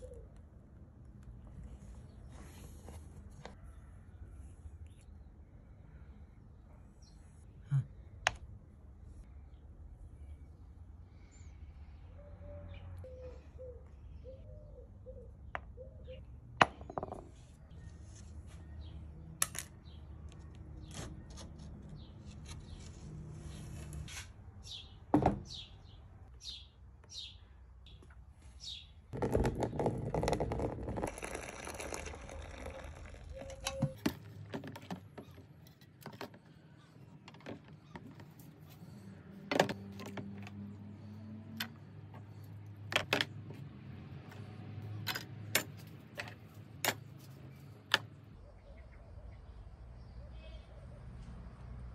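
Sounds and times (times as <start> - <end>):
metal parts clicking and knocking: 45.0 - 48.1.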